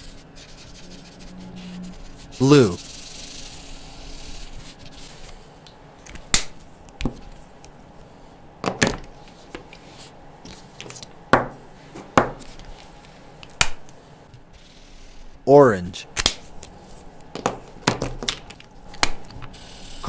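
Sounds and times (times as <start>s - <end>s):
marker nib rubbing on paper: 0.0s - 5.3s.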